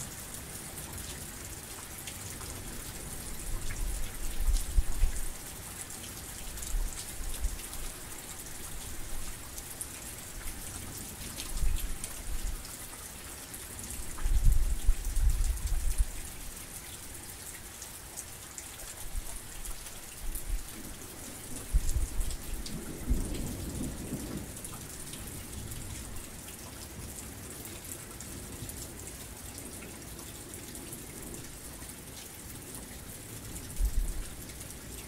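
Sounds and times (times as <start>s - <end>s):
heavy rain falling: 0.0s - 35.0s
low rumble of thunder: 2.6s - 5.4s, 13.9s - 16.2s, 20.4s - 26.3s, 33.4s - 34.4s.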